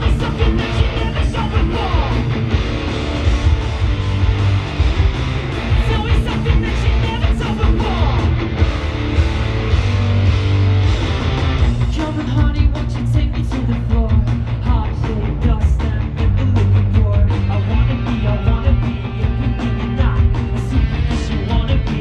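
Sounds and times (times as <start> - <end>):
live rock band playing: 0.0 - 22.0.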